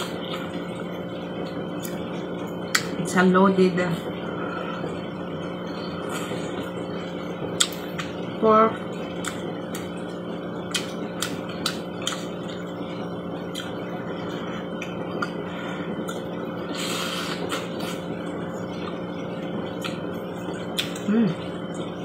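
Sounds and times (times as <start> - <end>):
steady background hum: 0.0 - 22.0
chewing clicks: 10.7 - 12.6
slurping noodles: 16.7 - 18.0.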